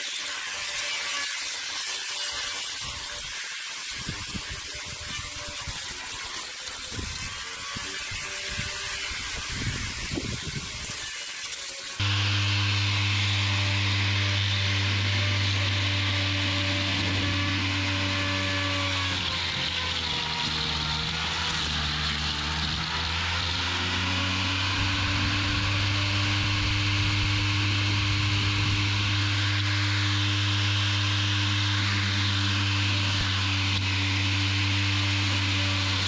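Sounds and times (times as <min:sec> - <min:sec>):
mower cutting head whirring: 0:00.0 - 0:36.0
low-pitched motor hum: 0:12.0 - 0:19.6, 0:22.4 - 0:34.5.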